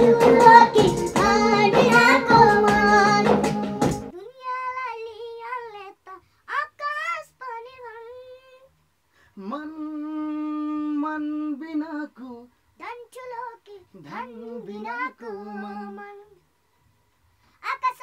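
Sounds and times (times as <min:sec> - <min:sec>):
boy singing solo: 0:04.1 - 0:08.7, 0:09.4 - 0:16.4.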